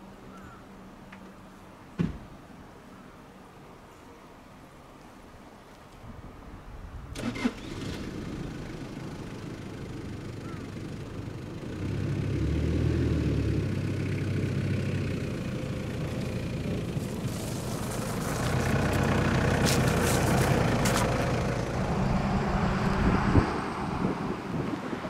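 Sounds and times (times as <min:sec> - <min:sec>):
van engine starting and running: 0:07.2 - 0:24.7.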